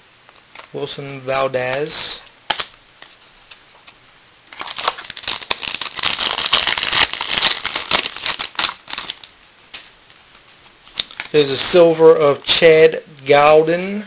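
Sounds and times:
foil wrapper crinkling and tearing: 0:04.5 - 0:09.3.

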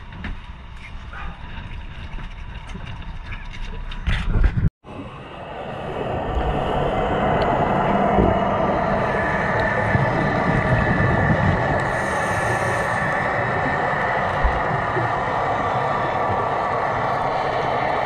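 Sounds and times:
muffled underwater rushing: 0:04.3 - 0:18.0.

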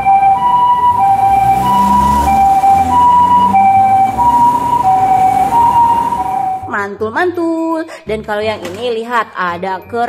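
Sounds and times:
ambulance two-tone siren: 0:00.0 - 0:06.7
vehicle engine rumbling: 0:00.0 - 0:06.7.

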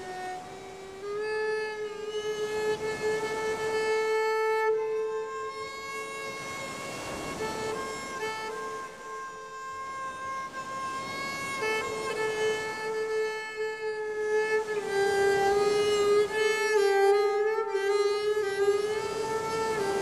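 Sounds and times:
bowed string instrument melody: 0:00.0 - 0:20.0.

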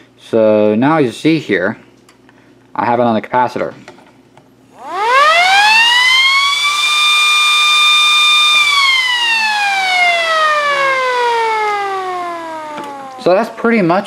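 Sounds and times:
motor siren winding: 0:04.8 - 0:13.7.

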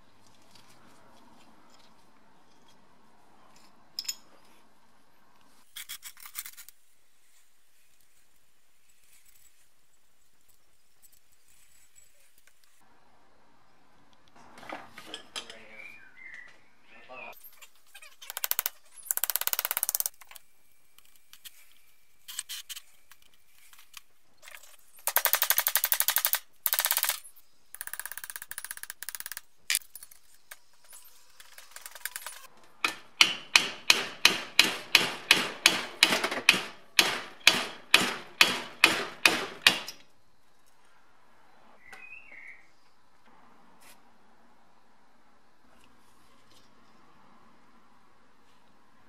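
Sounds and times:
hammer striking metal bar: 0:32.8 - 0:40.0.

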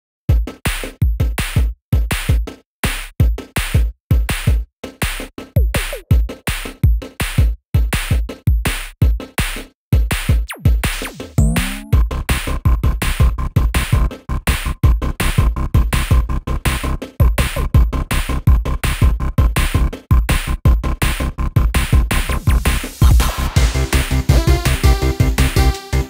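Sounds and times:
drum machine beat: 0:00.3 - 0:26.0
sliding synth tones: 0:11.4 - 0:12.0.

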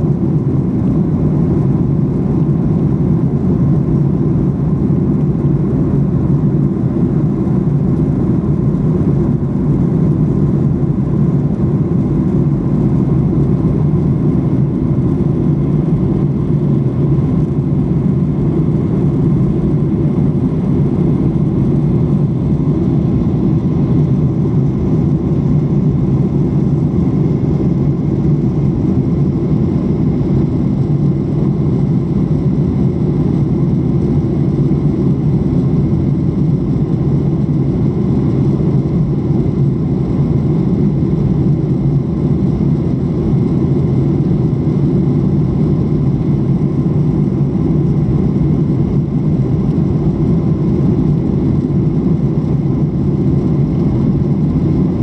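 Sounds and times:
airliner cabin engine roar: 0:00.0 - 0:55.0.

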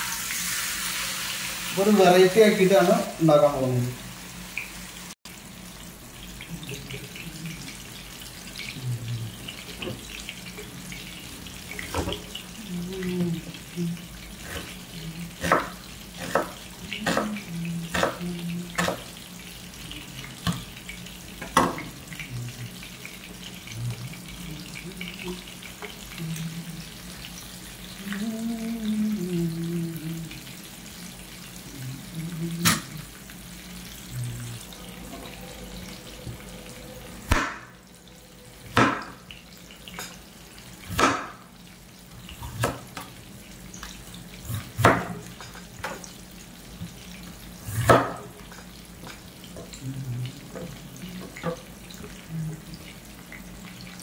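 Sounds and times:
chicken sizzling in oil: 0:00.0 - 0:54.0
knife chopping on wooden board: 0:15.4 - 0:17.3, 0:38.7 - 0:39.1, 0:40.9 - 0:41.4, 0:44.5 - 0:45.2, 0:47.8 - 0:48.3.

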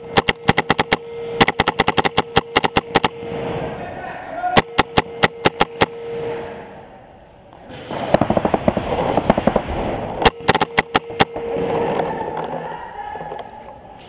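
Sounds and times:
paintball markers firing: 0:00.0 - 0:03.2, 0:04.6 - 0:05.9, 0:10.2 - 0:11.4.

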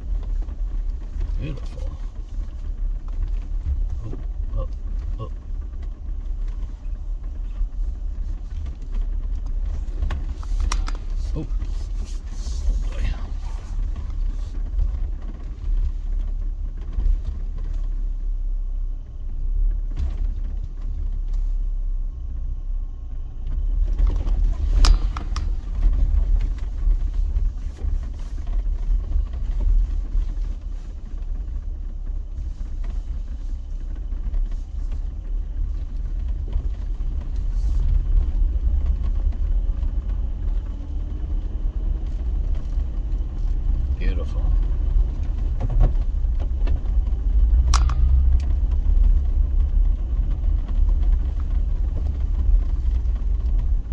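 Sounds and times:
knocks and rattles from bumps: 0:00.0 - 0:18.4, 0:19.0 - 0:21.5, 0:23.4 - 0:53.9
vehicle engine and tyres rumbling: 0:00.0 - 0:53.9.

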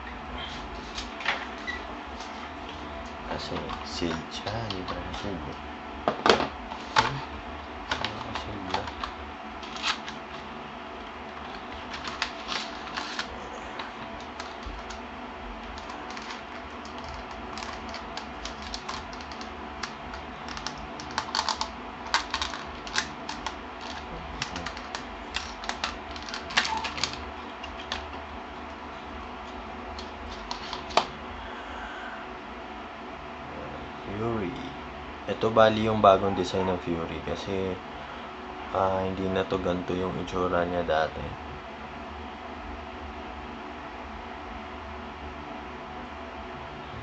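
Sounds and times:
faint steady hum: 0:00.0 - 0:47.0
plastic packaging crackling: 0:11.3 - 0:15.0, 0:15.6 - 0:28.2.

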